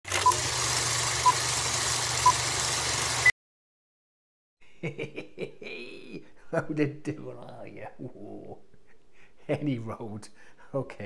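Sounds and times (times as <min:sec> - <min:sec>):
film projector whir and crackle: 0:00.1 - 0:03.3
man laughing: 0:04.6 - 0:09.9.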